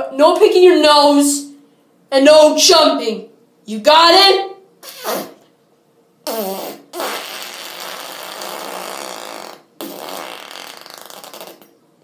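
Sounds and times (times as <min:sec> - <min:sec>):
fart noises: 0:04.8 - 0:05.5, 0:06.2 - 0:11.8.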